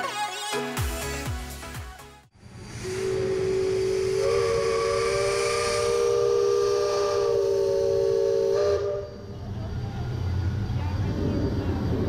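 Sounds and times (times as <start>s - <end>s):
steam whistle blast: 2.6s - 9.4s.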